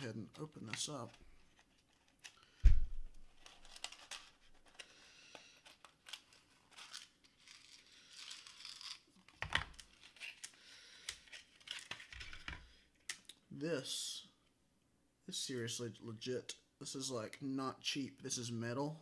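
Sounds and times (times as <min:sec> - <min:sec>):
plastic wrapping crinkling and tearing: 0:01.5 - 0:12.4.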